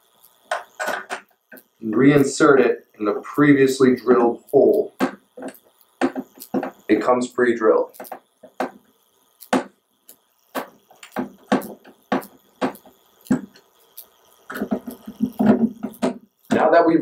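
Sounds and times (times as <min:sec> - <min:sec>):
screwdriver clicking: 0:00.2 - 0:01.8, 0:05.0 - 0:06.9, 0:07.9 - 0:16.6.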